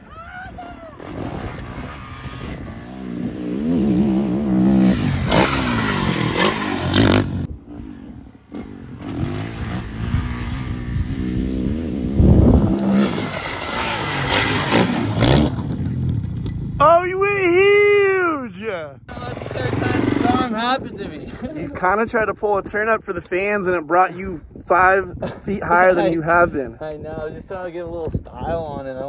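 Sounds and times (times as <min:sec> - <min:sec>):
dirt bike engine revving: 0:01.0 - 0:16.8, 0:19.1 - 0:20.6.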